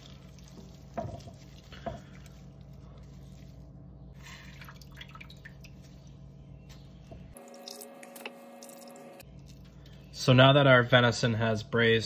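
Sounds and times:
liquid dripping: 0.0 - 3.6, 4.3 - 6.0, 7.4 - 10.0
wet squishing of meat: 0.0 - 6.1.

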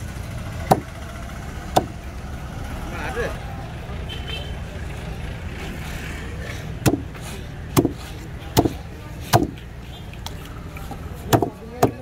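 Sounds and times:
knife chopping fish on wooden board: 9.4 - 9.6.

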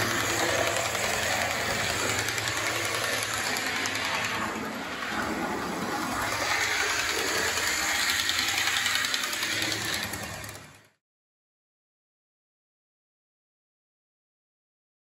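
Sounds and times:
model train motor whirring: 0.0 - 11.0.

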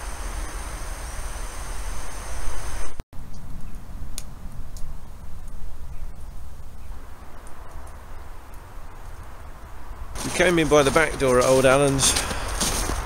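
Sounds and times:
stove burning with rushing hiss: 0.0 - 3.0.

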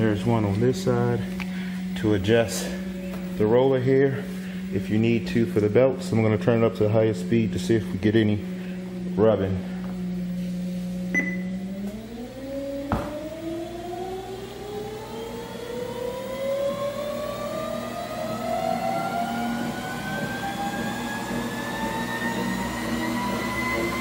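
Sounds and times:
treadmill motor whine rising: 0.0 - 24.0
short beep: 11.1 - 11.6.

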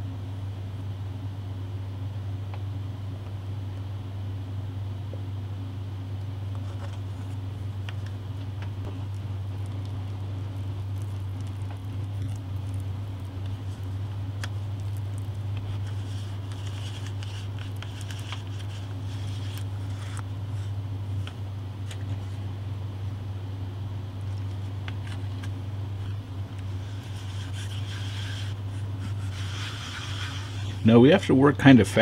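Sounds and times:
steady low hum: 0.0 - 32.0
paste squishing and scraping: 9.0 - 20.2.

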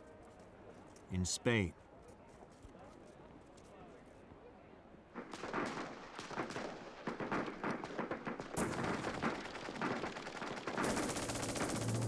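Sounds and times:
rapid gunshots: 5.2 - 12.0.

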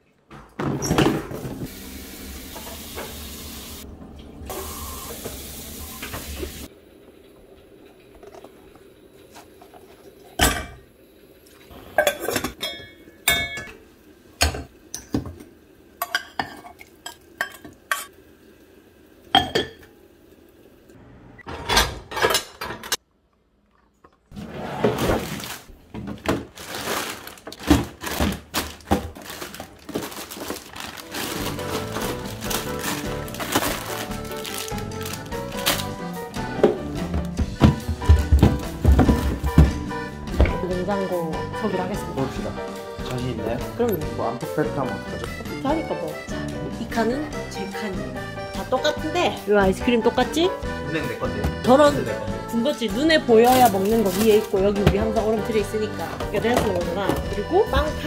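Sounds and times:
kitchenware knocking and clinking: 10.4 - 10.8, 12.0 - 13.8, 21.4 - 23.0, 36.6 - 40.6, 53.5 - 58.0.

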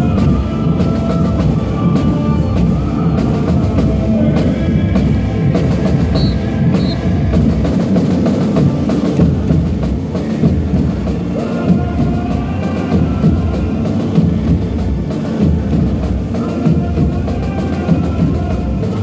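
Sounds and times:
drum and percussion music: 0.0 - 19.0.

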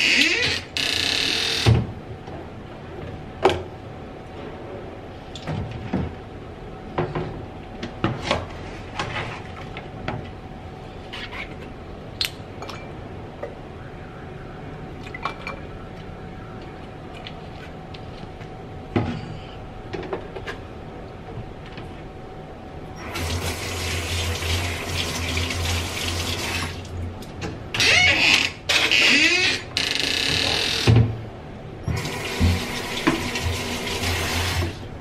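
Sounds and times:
tap running into sink: 31.9 - 33.7.

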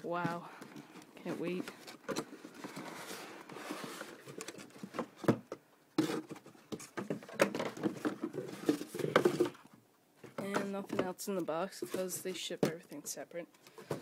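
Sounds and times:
cardboard box rustling and scraping: 1.2 - 5.2, 6.0 - 9.6.

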